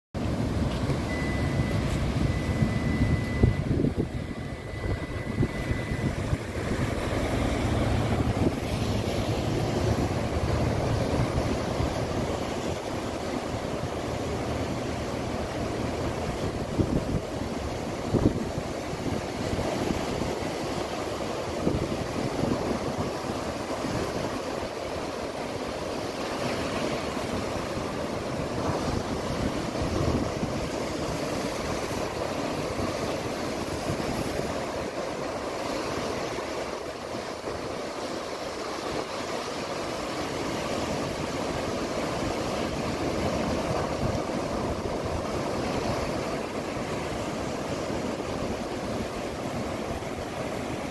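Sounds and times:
heavy surf crashing: 0:00.2 - 0:50.9
wind buffeting microphone: 0:00.4 - 0:14.1, 0:15.8 - 0:20.6, 0:26.9 - 0:35.0.

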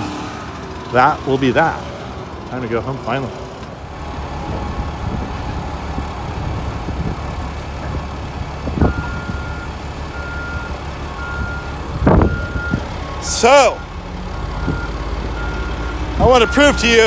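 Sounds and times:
truck engine running: 0:00.0 - 0:17.0
backup alarm beeping: 0:08.9 - 0:16.8.

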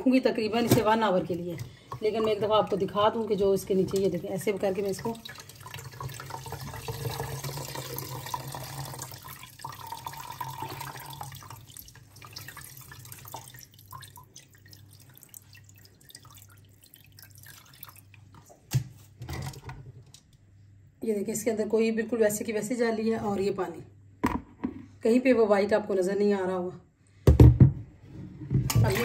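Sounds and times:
water trickling and dripping: 0:03.9 - 0:18.6.

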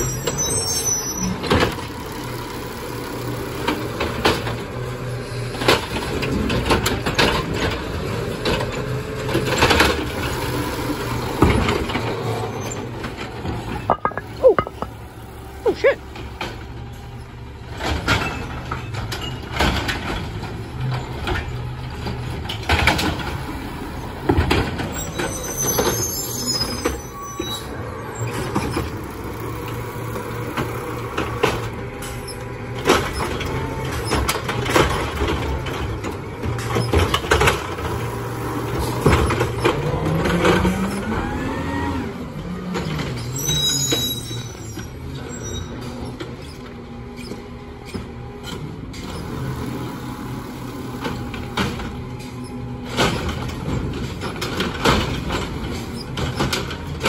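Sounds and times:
brief high squeals: 0:00.0 - 0:01.4
carts clunking and banging: 0:00.0 - 0:57.0
garbage truck engine running: 0:00.0 - 0:57.0.

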